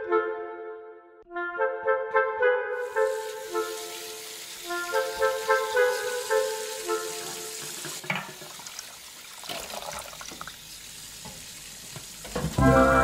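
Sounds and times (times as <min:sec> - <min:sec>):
music: 0:00.0 - 0:07.9, 0:12.3 - 0:13.0
steady kitchen hiss: 0:02.8 - 0:13.0.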